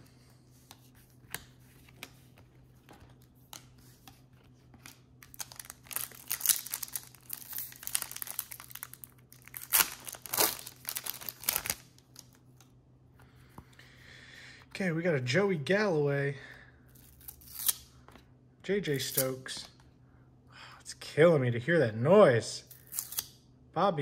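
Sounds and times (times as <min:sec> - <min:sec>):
foil wrapper crinkling: 0:04.8 - 0:12.4.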